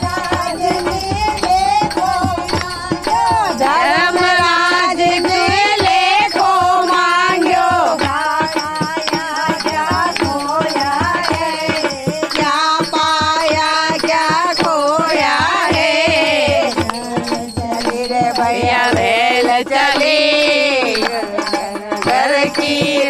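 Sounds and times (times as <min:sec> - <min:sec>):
hand clapping: 0:00.0 - 0:15.8, 0:16.6 - 0:23.0
hand drum beat: 0:00.0 - 0:23.0
women singing devotional song: 0:00.0 - 0:23.0.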